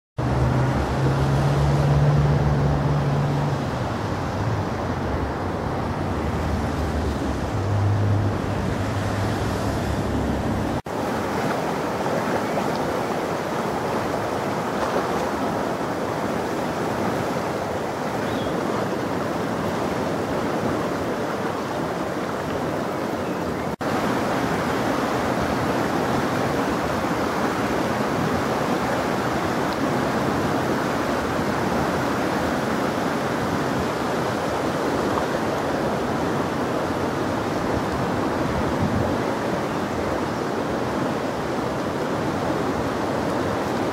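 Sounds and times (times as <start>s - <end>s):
floodwater rushing: 0.2s - 43.9s.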